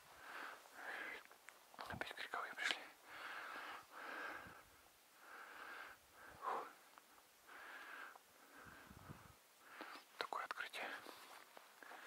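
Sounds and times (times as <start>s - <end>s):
man breathing heavily: 0.1s - 1.2s, 3.0s - 10.1s, 11.8s - 12.0s.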